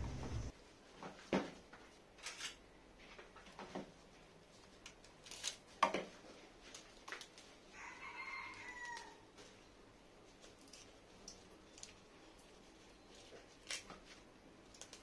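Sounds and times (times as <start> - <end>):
leafy greens rustling: 4.4 - 7.9, 10.2 - 15.0.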